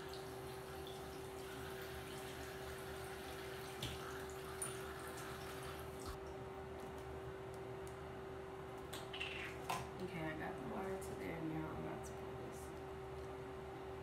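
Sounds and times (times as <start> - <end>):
tap water filling plastic bottle: 0.0 - 6.2.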